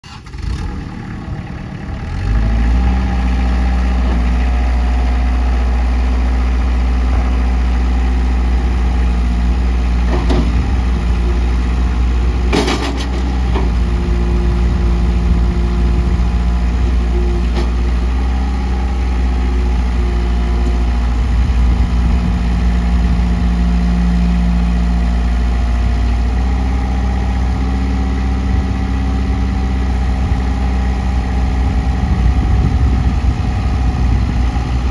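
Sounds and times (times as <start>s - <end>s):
tractor diesel engine running: 0.0s - 34.9s
sharp clunk: 12.5s - 13.7s.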